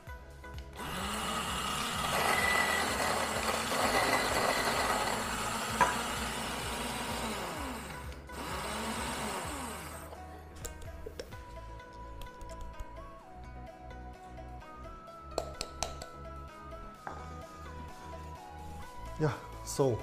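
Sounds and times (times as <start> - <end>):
coffee grinder grinding beans: 0.8 - 10.1.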